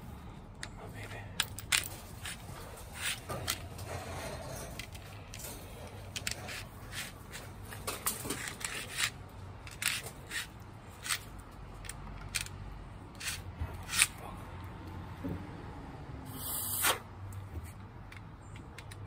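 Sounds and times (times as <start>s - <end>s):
tool scraping copper tube: 2.2s - 5.0s.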